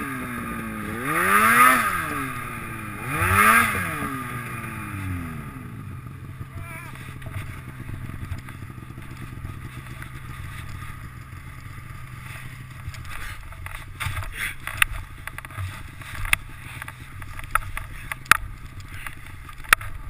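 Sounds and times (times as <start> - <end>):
snowmobile engine idling: 0.0 - 20.0.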